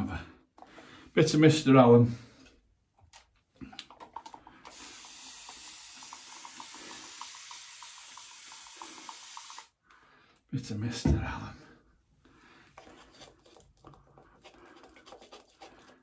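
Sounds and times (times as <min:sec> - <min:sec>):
tap water running into sink: 0:04.2 - 0:09.7.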